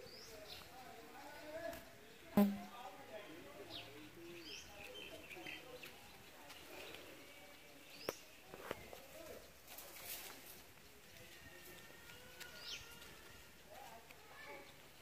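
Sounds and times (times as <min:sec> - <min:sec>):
faint distant voices: 0:00.0 - 0:15.0
birds chirping: 0:02.1 - 0:09.6, 0:12.2 - 0:13.3.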